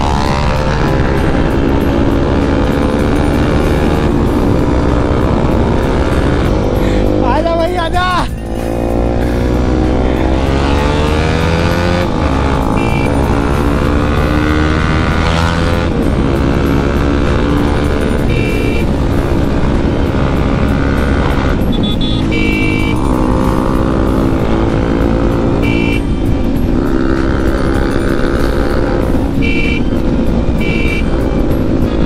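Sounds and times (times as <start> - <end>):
motorcycle engine revving: 0.0 - 32.0
two-tone horn beeps: 12.6 - 13.7, 18.0 - 19.0, 21.6 - 23.2, 25.6 - 26.2, 29.4 - 30.0, 30.6 - 31.2.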